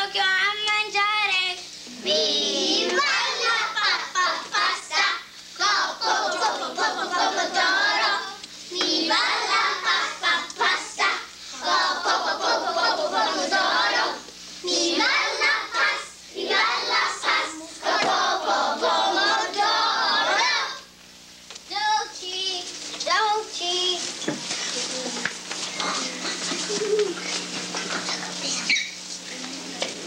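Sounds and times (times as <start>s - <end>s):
children singing together: 2.0s - 20.9s.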